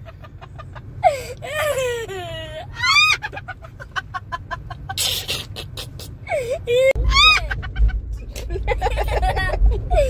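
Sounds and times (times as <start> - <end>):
child laughing: 0.1 - 10.0.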